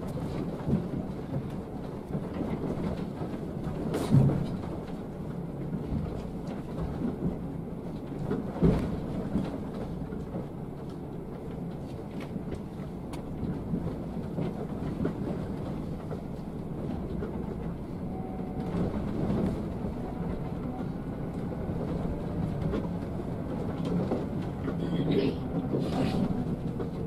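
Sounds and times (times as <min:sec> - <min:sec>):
bus cabin rumble and rattling: 0:00.0 - 0:27.0
heavy thuds of bus in potholes: 0:00.0 - 0:27.0.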